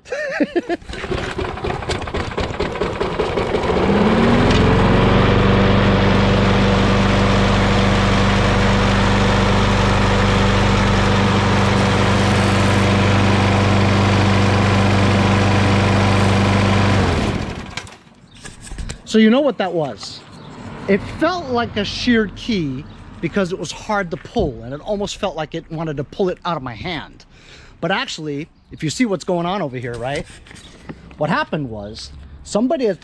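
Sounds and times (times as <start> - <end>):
lawn mower engine running: 0.7 - 18.0.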